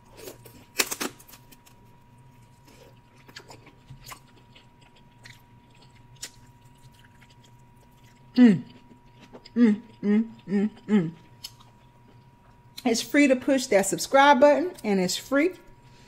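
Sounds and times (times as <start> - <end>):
crab shell cracking: 0.7 - 1.8.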